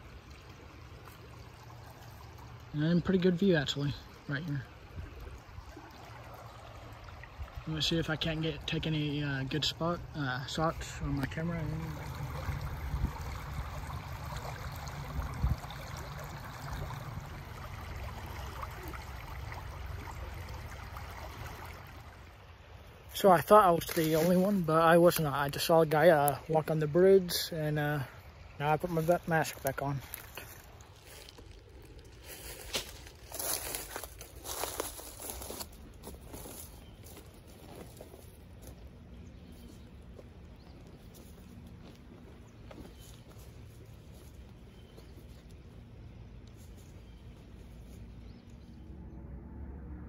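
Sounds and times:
footsteps crunching dry leaves: 0:23.8 - 0:24.6, 0:29.0 - 0:38.8, 0:39.5 - 0:45.6
low rumble: 0:48.1 - 0:50.0.

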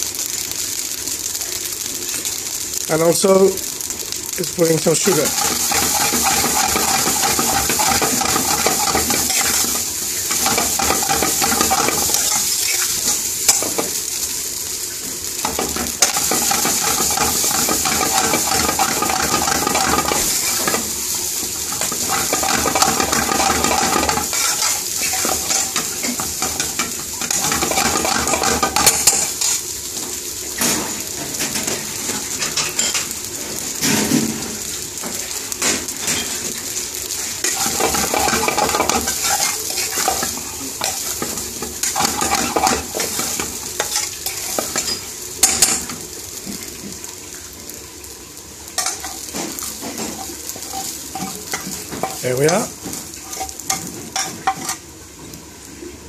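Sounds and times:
frying sizzle: 0:00.0 - 0:56.0
metal spoon scraping pan: 0:05.0 - 0:13.8, 0:15.6 - 0:20.9, 0:21.7 - 0:29.4, 0:37.4 - 0:45.7, 0:53.2 - 0:54.8
spoon clanking against pan: 0:05.2 - 0:12.9, 0:15.4 - 0:20.9, 0:21.7 - 0:29.3, 0:37.4 - 0:45.9, 0:48.8 - 0:54.8.

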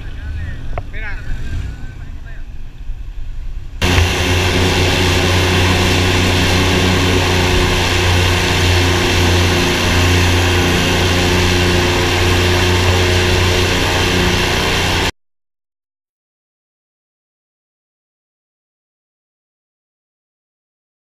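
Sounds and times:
airboat engine and propeller drone: 0:03.8 - 0:15.1.

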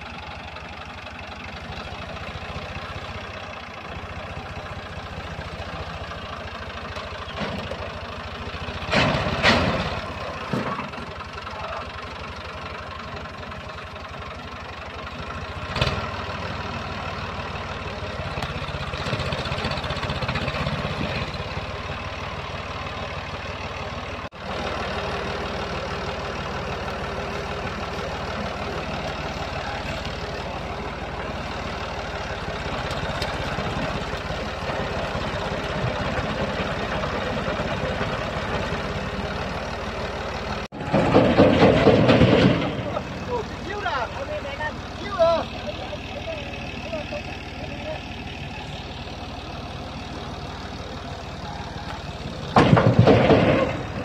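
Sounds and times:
tractor engine under load: 0:00.0 - 0:54.0.

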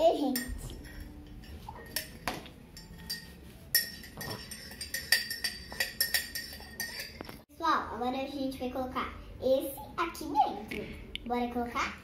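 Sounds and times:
metal spoon clinking on glass cup: 0:00.3 - 0:07.4.

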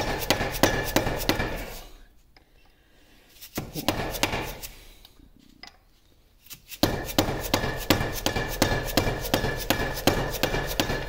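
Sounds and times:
hammer striking steel punch: 0:00.0 - 0:01.7, 0:03.8 - 0:04.6, 0:06.8 - 0:11.0.

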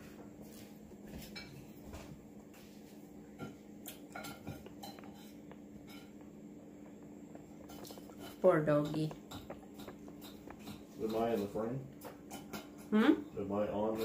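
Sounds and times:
faint steady hum: 0:00.0 - 0:14.0
cutlery clinking on plates: 0:03.4 - 0:06.2, 0:07.6 - 0:12.9.

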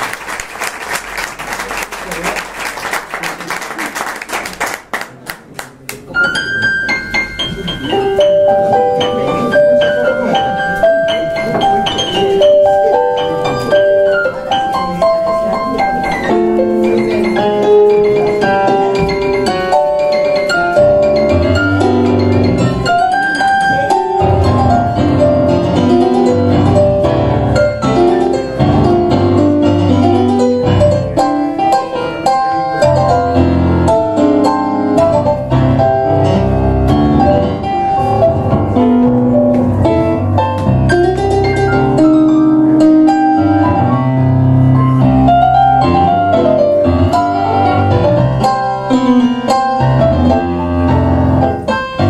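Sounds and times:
applause: 0:00.0 - 0:06.0
tango piano duet: 0:05.9 - 0:52.0.

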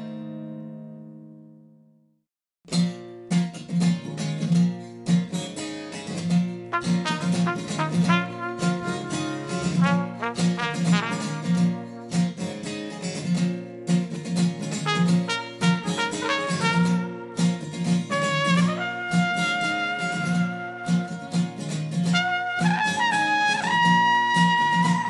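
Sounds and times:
acoustic guitar strumming: 0:02.7 - 0:25.0
cornet playing melody: 0:06.8 - 0:12.2, 0:14.8 - 0:25.0.

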